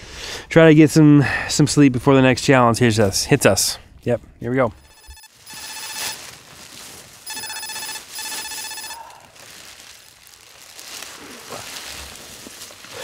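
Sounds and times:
electronic alarm trilling ring: 0:04.8 - 0:06.2, 0:07.2 - 0:09.0.

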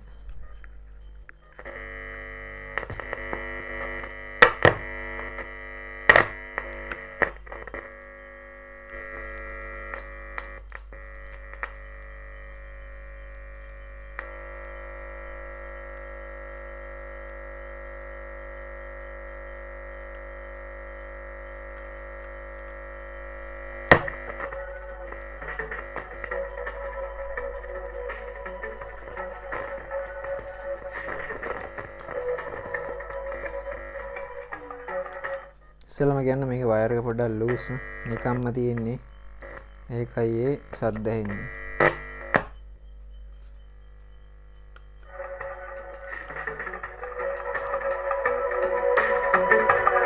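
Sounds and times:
loudspeaker buzzing hum: 0:00.0 - 0:50.0
mains hum: 0:00.0 - 0:50.0
loudspeaker pops and crackles: 0:02.8 - 0:05.5, 0:06.1 - 0:07.9, 0:23.9 - 0:24.6, 0:41.8 - 0:42.6.

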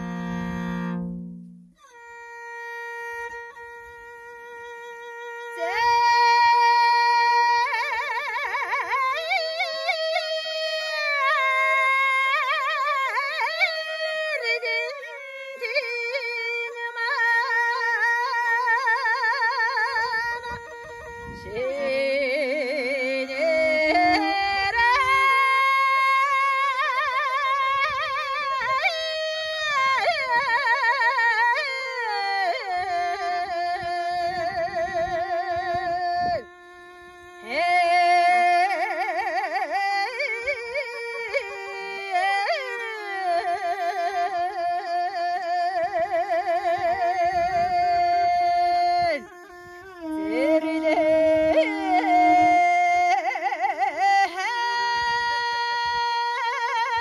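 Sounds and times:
bowed fiddle: 0:00.0 - 0:57.0
woman singing long held notes: 0:21.4 - 0:29.2, 0:50.0 - 0:57.0.

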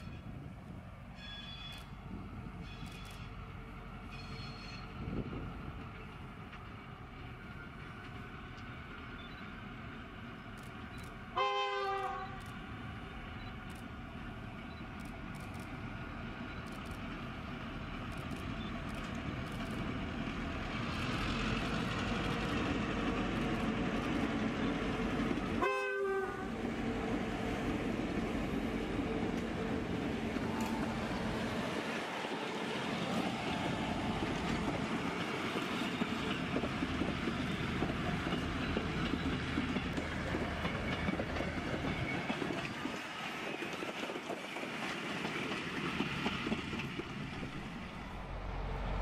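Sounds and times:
diesel locomotive engines: 0:00.0 - 0:49.0
locomotive horn: 0:11.4 - 0:12.4, 0:25.6 - 0:26.6.

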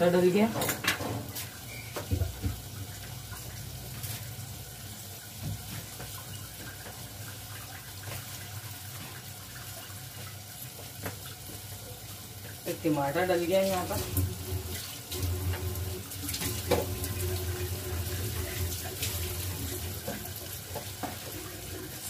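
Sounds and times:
tap running into sink: 0:00.6 - 0:03.0, 0:13.9 - 0:22.0.

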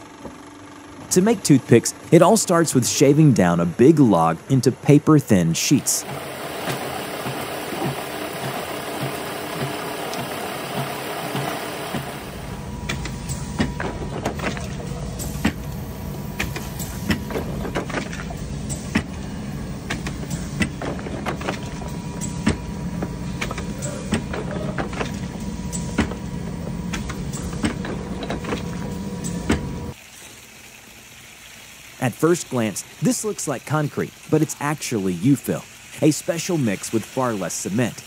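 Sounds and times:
factory machinery humming: 0:00.0 - 0:30.0.

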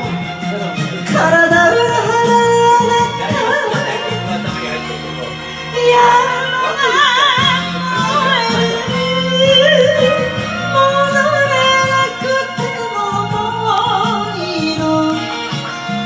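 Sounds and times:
karaoke backing track: 0:00.0 - 0:16.0
woman singing into a microphone: 0:01.0 - 0:16.0.

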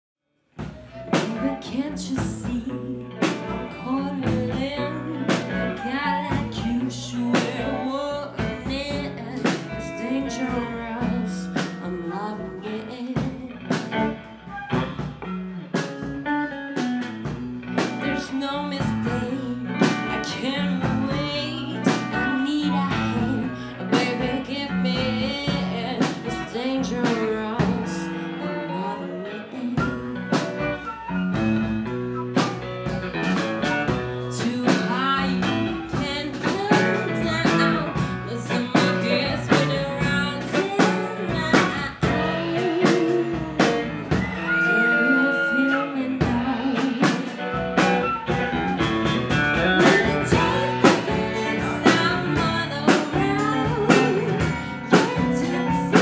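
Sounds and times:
blues guitar: 0:00.6 - 0:56.0
person singing: 0:00.8 - 0:14.0, 0:17.2 - 0:30.6, 0:34.2 - 0:56.0
percussion beat: 0:46.2 - 0:56.0.

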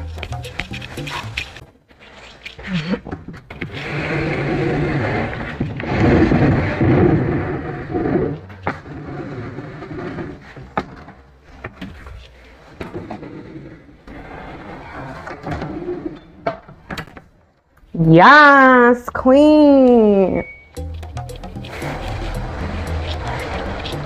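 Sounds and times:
furniture scraping on tile floor: 0:00.8 - 0:17.2, 0:21.3 - 0:24.0.

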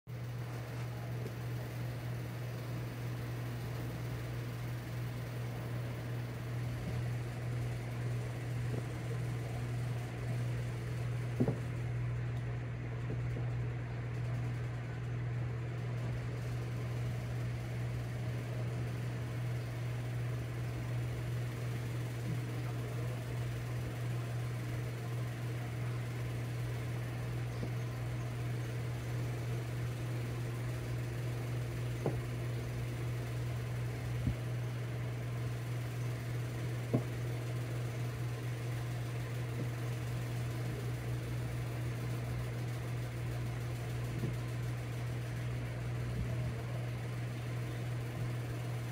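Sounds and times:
low mechanical hum: 0:00.1 - 0:48.9
faint light taps on plastic: 0:11.4 - 0:11.7.

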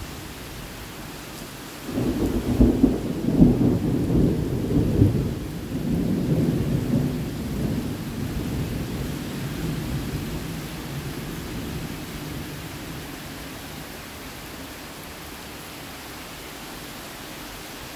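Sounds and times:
heavy rain hissing: 0:00.0 - 0:17.9
thunder rumble: 0:01.9 - 0:13.4.

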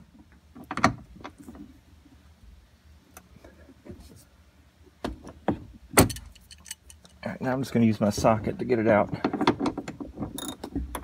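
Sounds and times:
hand tools clinking on bolt: 0:06.0 - 0:07.2.

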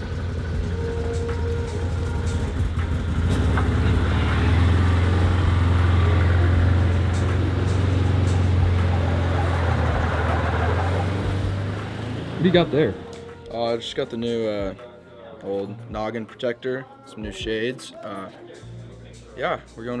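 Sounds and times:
side-by-side engine running: 0:00.0 - 0:13.1.

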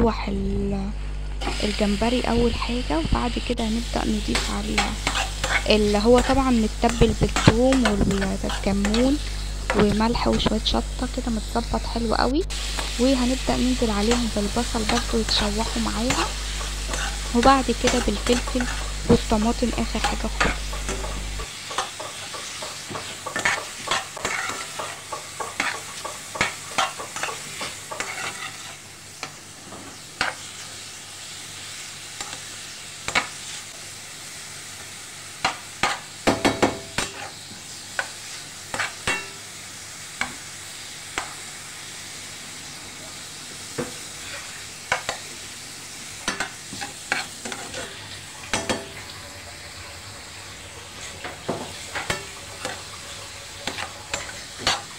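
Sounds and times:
shrimp and onions sizzling in oil: 0:00.4 - 0:54.9
utensil scraping a pan: 0:04.8 - 0:10.5, 0:14.1 - 0:28.8.

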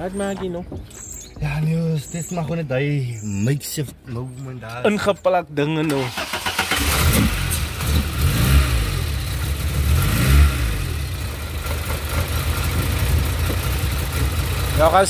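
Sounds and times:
car engine revving: 0:06.0 - 0:15.0.

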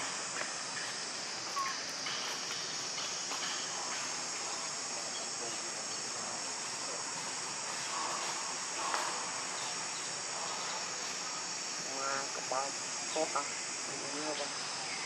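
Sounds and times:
insects shrilling: 0:00.0 - 0:15.0
faint chirp: 0:00.8 - 0:02.3.

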